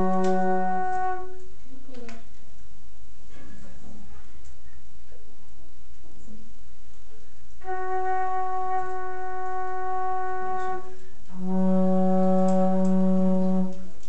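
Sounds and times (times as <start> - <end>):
flute ensemble holding chords: 0.0 - 1.5, 7.6 - 14.0.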